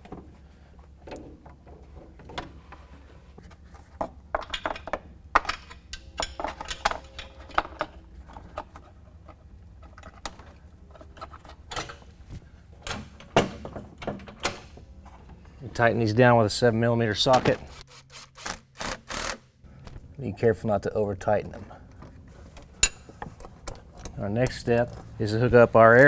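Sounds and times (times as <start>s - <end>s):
low steady hum: 0.0s - 18.6s, 19.6s - 26.0s
metal hose clamps clinking: 4.4s - 12.1s.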